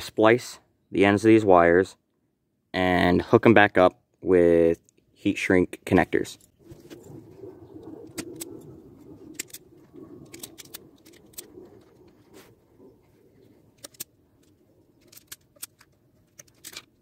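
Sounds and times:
parts and wires clicking: 0:06.3 - 0:17.0.

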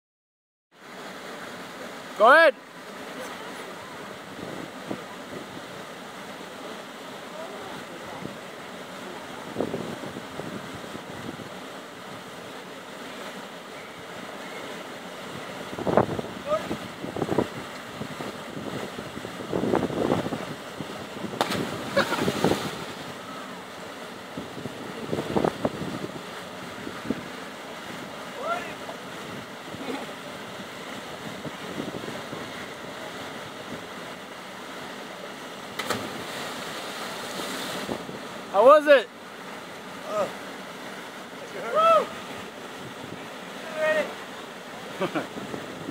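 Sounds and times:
water rushing over rocks: 0:00.8 - 0:45.9
wind on microphone: 0:09.5 - 0:11.5, 0:15.5 - 0:23.1, 0:24.4 - 0:27.4, 0:31.1 - 0:32.7, 0:45.3 - 0:45.9
body splashing into water: 0:21.3 - 0:23.0, 0:35.7 - 0:38.0
river cascade rushing: 0:26.0 - 0:31.8, 0:32.4 - 0:45.0.

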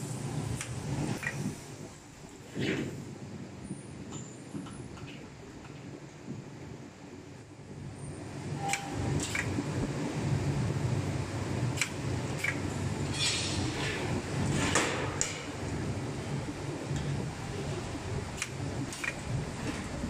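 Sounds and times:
welding machine hum: 0:07.4 - 0:20.0.

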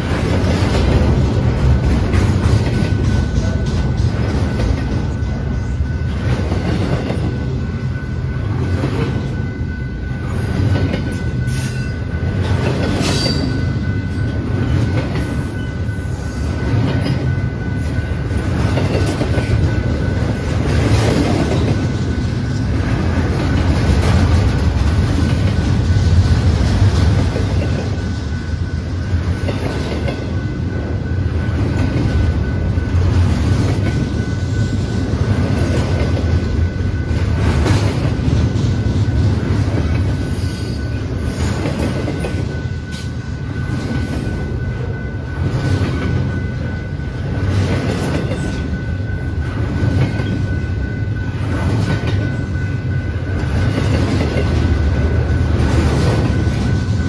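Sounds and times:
wheels clacking over rail joints: 0:00.0 - 0:05.5
train wheels rumbling on rail: 0:00.0 - 0:57.0.

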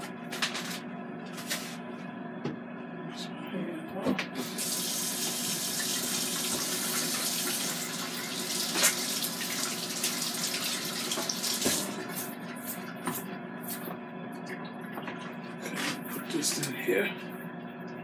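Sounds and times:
water running from a tap: 0:04.4 - 0:12.2.

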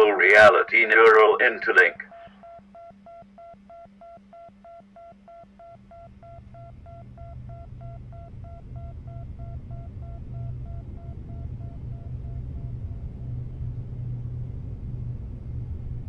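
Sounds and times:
rapid electronic beeping: 0:00.3 - 0:13.4
low rumbling drone: 0:05.8 - 0:16.0.

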